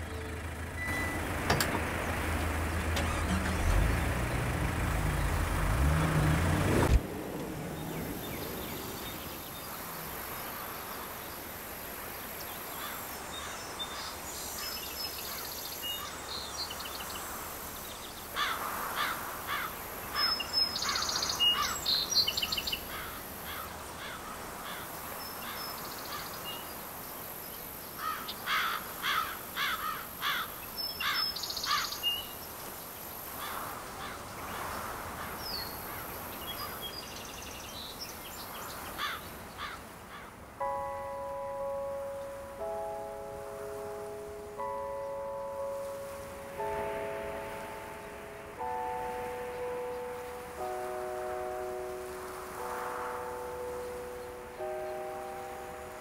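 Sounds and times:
car engine running: 0.0 - 8.7
songbirds chirping: 0.0 - 56.0.

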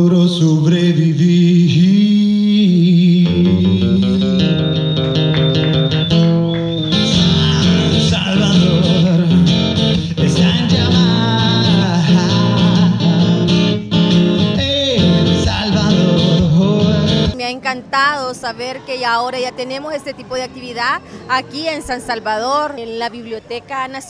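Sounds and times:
man singing: 0.0 - 4.8, 7.0 - 17.4
strummed acoustic guitar: 3.0 - 17.4.

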